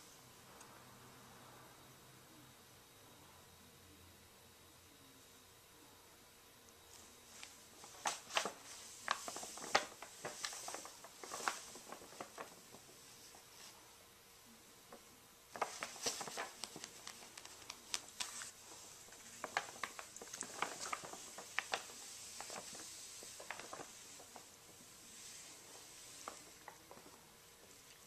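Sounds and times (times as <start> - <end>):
paper bag crinkling: 7.3 - 13.7, 15.5 - 28.0.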